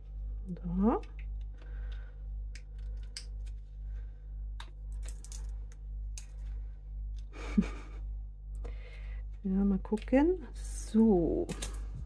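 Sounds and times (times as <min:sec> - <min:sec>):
steady low hum: 0:00.0 - 0:12.0
silicone mould clicks and crackles: 0:00.6 - 0:03.6, 0:04.5 - 0:06.5, 0:09.6 - 0:11.9.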